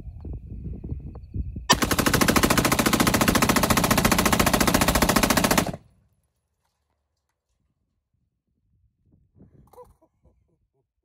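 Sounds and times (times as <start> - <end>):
rifle firing rapid shots: 1.7 - 5.8.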